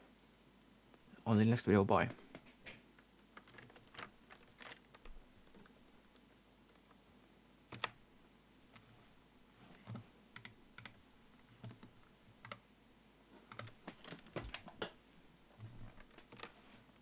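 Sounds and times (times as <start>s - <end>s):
computer keyboard keystrokes: 7.7s - 8.0s, 9.9s - 11.0s, 11.6s - 12.6s, 13.5s - 14.6s.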